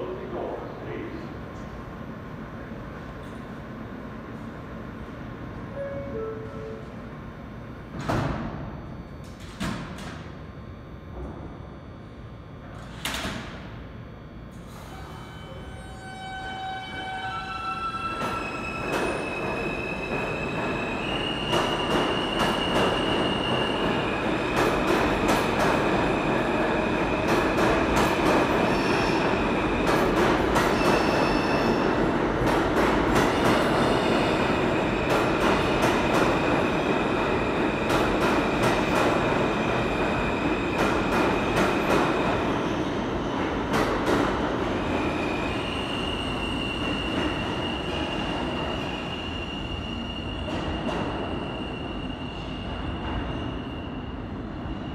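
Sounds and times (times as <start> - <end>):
subway train rumbling: 0.0 - 54.9.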